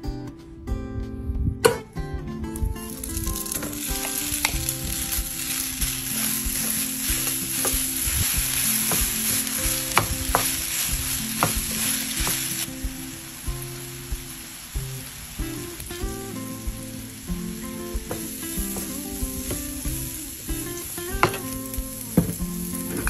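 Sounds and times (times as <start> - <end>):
soft acoustic guitar music: 0.0 - 23.0
meat sizzling in frying pan: 2.9 - 23.0.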